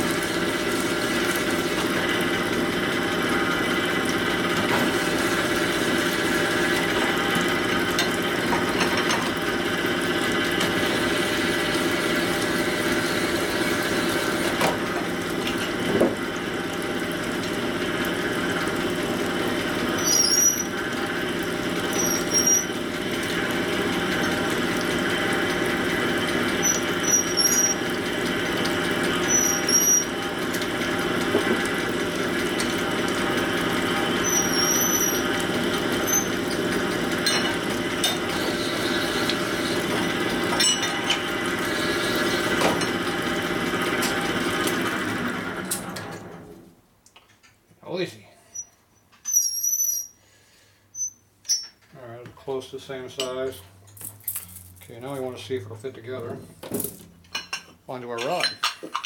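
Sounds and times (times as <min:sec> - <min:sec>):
short high squeaks: 0:20.0 - 0:20.8, 0:22.0 - 0:22.8, 0:26.6 - 0:27.8, 0:29.3 - 0:30.1, 0:34.2 - 0:35.2, 0:48.4 - 0:50.2, 0:50.9 - 0:51.8.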